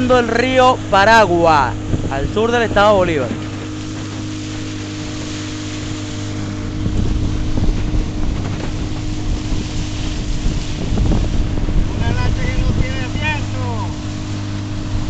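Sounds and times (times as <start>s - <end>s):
outboard motor running: 0.0s - 15.0s
wind buffeting microphone: 0.0s - 15.0s
water spray hissing along hull: 3.0s - 15.0s.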